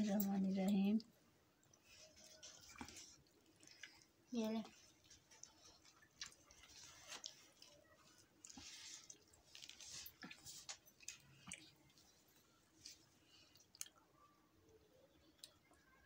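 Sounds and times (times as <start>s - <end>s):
people chewing: 0.0s - 16.0s
hands rustling food: 1.7s - 14.2s.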